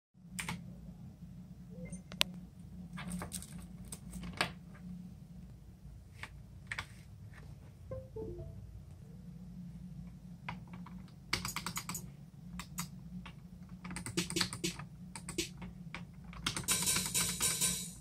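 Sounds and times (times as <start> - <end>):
low hum: 7.9 - 10.1.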